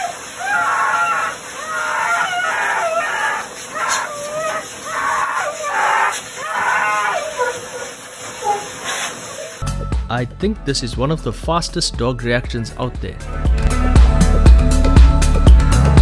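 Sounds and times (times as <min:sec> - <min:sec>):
dog yowling and howling: 0:00.0 - 0:09.6
grooming dryer blowing: 0:00.0 - 0:09.6.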